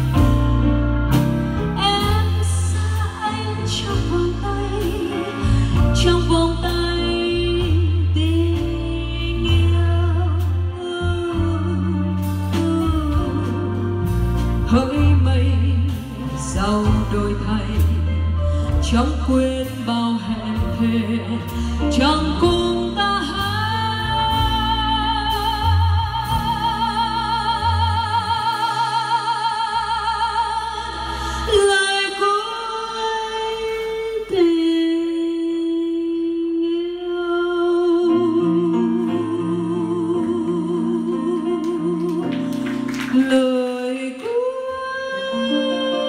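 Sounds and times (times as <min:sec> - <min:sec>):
electric bass: 0:00.0 - 0:32.1
woman singing with vibrato: 0:01.8 - 0:13.8, 0:14.6 - 0:46.0.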